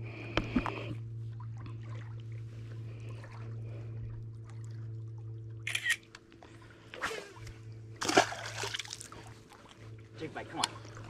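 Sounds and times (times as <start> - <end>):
low hum: 0.0 - 11.0
water splashing: 8.0 - 11.0.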